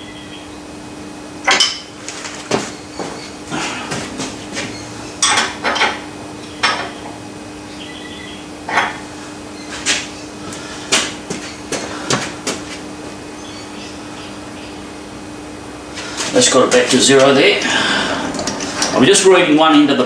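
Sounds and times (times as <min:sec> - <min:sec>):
faint hum: 0:00.0 - 0:20.0
steel tools clanking on metal: 0:01.5 - 0:01.9, 0:04.7 - 0:07.0, 0:08.7 - 0:09.0.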